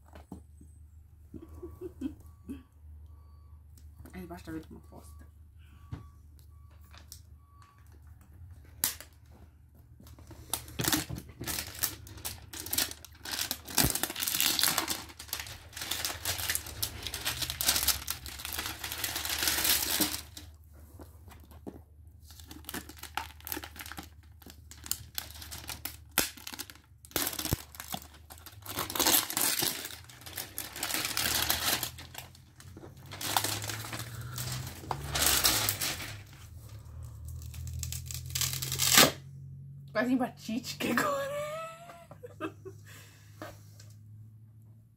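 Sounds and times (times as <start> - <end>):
plastic wrap tearing and crackling: 10.4 - 20.6, 22.2 - 36.6, 37.2 - 39.2.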